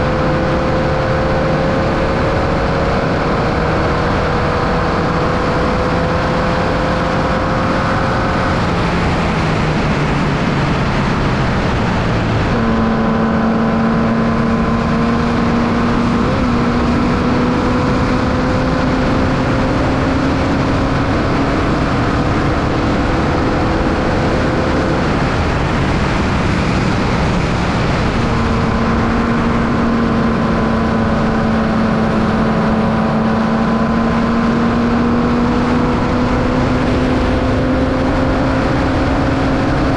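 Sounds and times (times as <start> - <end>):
race car engine under load: 0.0 - 39.9
steady rush of noise: 0.0 - 39.9.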